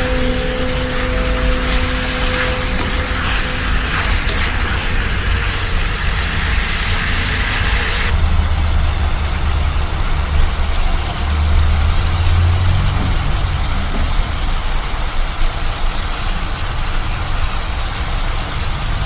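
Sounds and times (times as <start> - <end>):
chicken sizzling in a frying pan: 0.0 - 14.7.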